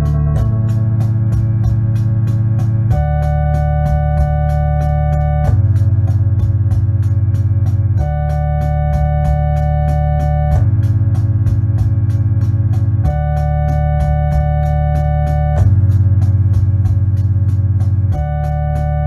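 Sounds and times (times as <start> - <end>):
bass line: 0.0 - 19.0
electronic organ chords: 0.0 - 19.0
ticking beat: 0.0 - 19.0.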